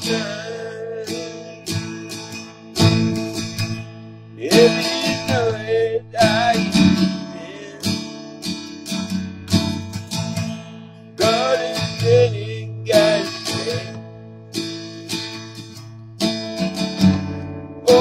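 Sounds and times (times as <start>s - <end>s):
man singing: 0.0s - 1.8s, 4.4s - 8.0s, 11.2s - 14.0s
acoustic guitar strumming: 0.0s - 18.0s.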